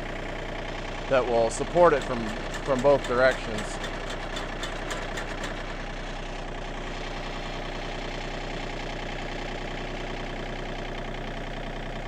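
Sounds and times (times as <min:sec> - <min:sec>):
tractor diesel engine running: 0:00.0 - 0:12.0
auger boring into sand: 0:01.0 - 0:06.2.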